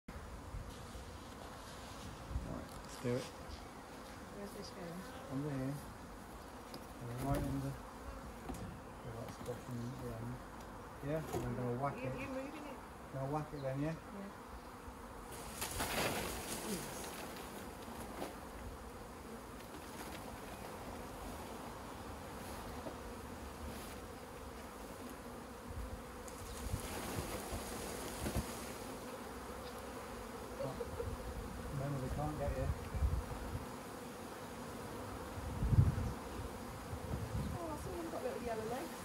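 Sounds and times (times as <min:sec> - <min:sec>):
bees buzzing: 0:03.0 - 0:39.0
branch rustling: 0:15.3 - 0:18.4.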